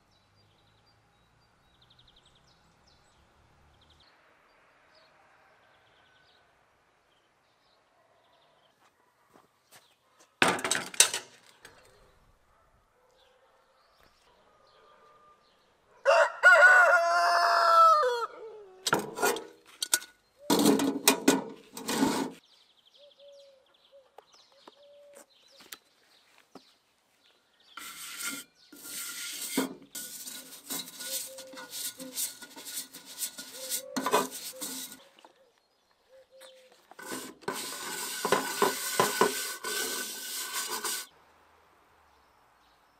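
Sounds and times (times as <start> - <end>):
cast iron cookware clattering: 10.4 - 11.4, 18.9 - 22.4, 27.8 - 35.0, 37.0 - 41.1
rooster crowing: 16.0 - 18.8
brush scrubbing cast iron pot: 27.8 - 35.2, 36.9 - 41.1.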